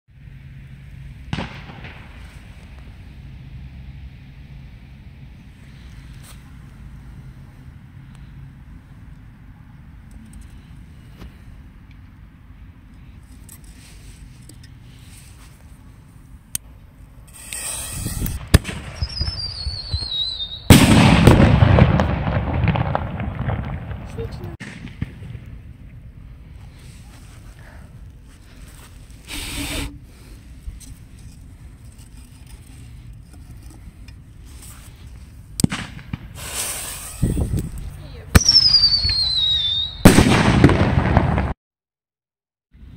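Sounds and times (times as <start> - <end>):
firework burst with crackling: 1.3 - 2.6, 17.4 - 26.9, 35.6 - 37.5, 38.3 - 41.6
firework mortar launch thump: 1.3 - 2.6, 17.6 - 20.1, 20.7 - 25.5, 35.6 - 37.6, 40.0 - 41.6
firework whistle: 17.3 - 22.0, 38.3 - 41.5
burning fuse fizzing: 36.4 - 37.5.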